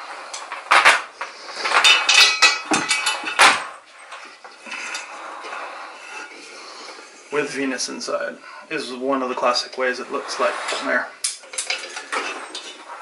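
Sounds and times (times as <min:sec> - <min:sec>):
hanging chain clattering: 0:01.6 - 0:05.2
metal lamp knocking and clinking: 0:01.9 - 0:03.5.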